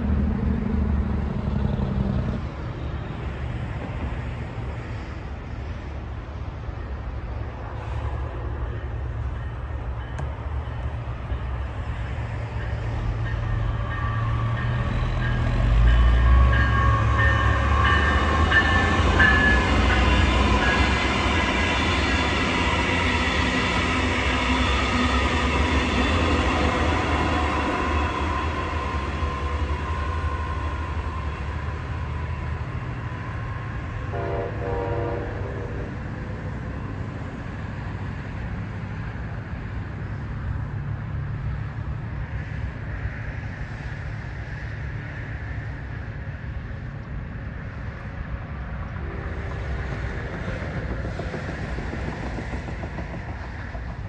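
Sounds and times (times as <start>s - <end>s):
train passing with low rumble: 0.0s - 54.0s
train horn: 33.4s - 36.2s.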